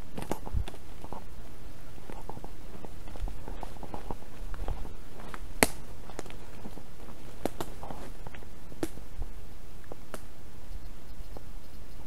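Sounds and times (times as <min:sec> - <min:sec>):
footsteps crunching through leaves: 0:00.0 - 0:10.4
sharp crack: 0:02.0 - 0:10.4.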